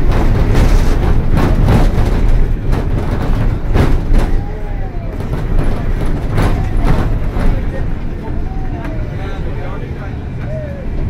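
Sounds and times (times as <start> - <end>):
bus body knocks and rattles: 0.0 - 11.0
bus engine and road rumble: 0.0 - 11.0.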